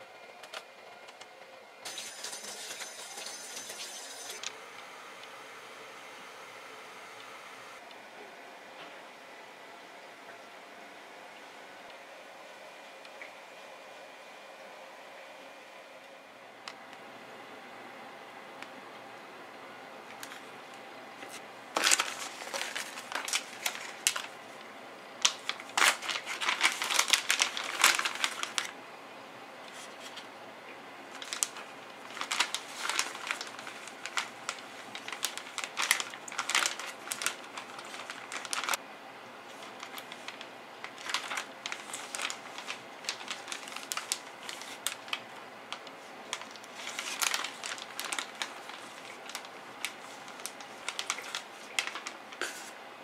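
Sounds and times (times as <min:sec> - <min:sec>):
plastic bag crinkling: 0:21.2 - 0:24.4, 0:25.2 - 0:28.8, 0:31.1 - 0:38.8, 0:39.5 - 0:52.7.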